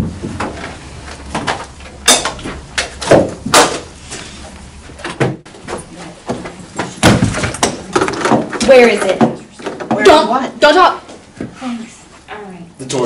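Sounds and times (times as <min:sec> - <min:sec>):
door knocks and thuds: 0:06.3 - 0:10.2.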